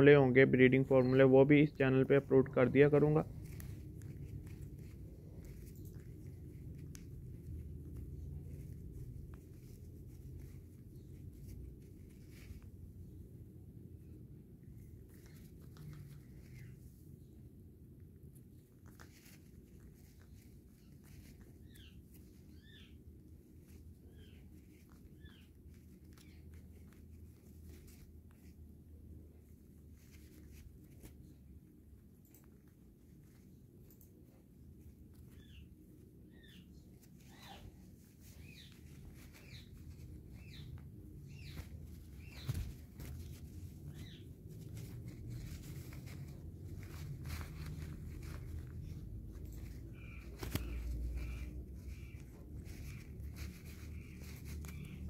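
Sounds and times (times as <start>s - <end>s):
low steady hum: 0.0s - 55.0s
rubbing and handling noise: 0.0s - 55.0s
parakeet chirping: 21.6s - 23.0s, 38.3s - 42.7s, 43.8s - 44.3s, 49.9s - 55.0s
parakeet chirps: 21.6s - 23.0s
soft scattered clicks: 30.2s - 36.6s.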